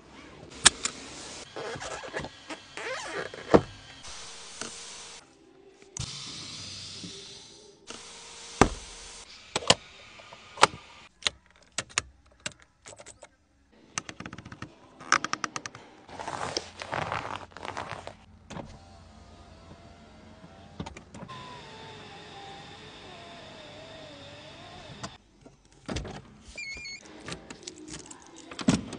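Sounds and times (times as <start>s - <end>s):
electric window motor whine: 18.6s - 25.2s.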